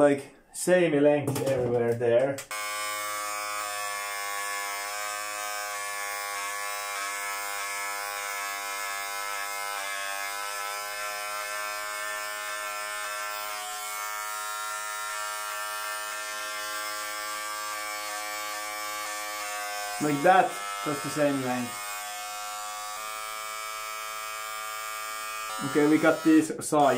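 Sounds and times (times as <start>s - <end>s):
electric hair clipper buzzing: 2.4s - 26.9s.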